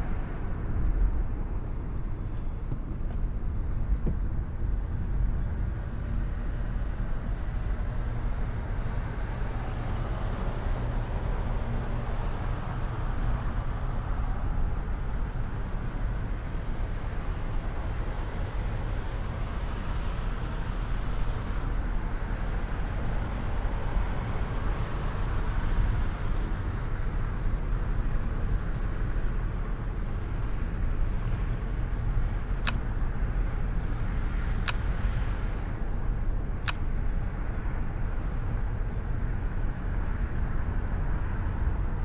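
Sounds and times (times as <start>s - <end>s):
car tyres and engine rumble: 0.0s - 42.0s
sharp click: 32.6s - 32.8s, 34.6s - 34.9s, 36.6s - 36.9s.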